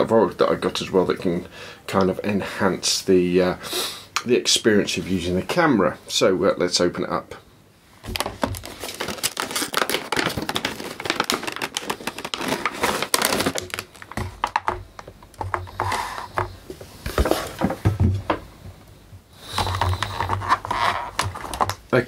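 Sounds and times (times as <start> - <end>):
plastic bag rustling: 8.0 - 18.0
cardboard box being opened: 8.1 - 14.6
clicking and scraping of plastic: 8.1 - 17.8, 19.5 - 21.8.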